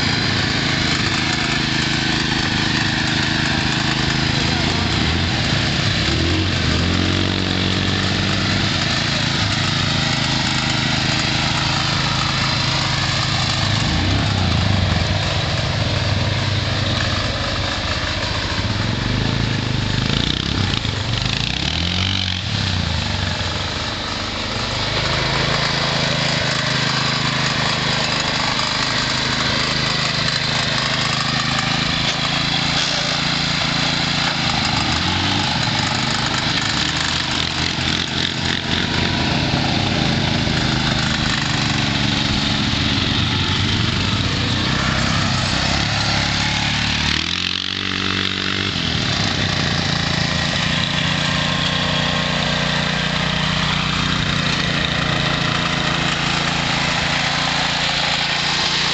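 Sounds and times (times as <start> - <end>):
garden tractor engine under load: 0.0 - 58.9.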